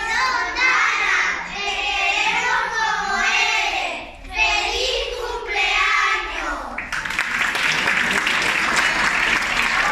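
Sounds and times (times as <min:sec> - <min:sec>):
children singing in unison: 0:00.0 - 0:06.8.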